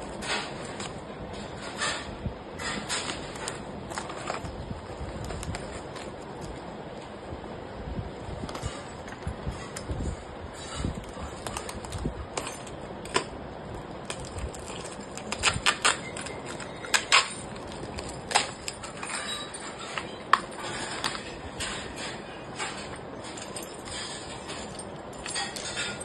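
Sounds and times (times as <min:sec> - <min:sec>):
plastic wrapping crinkling: 0:02.6 - 0:07.2, 0:10.8 - 0:26.0.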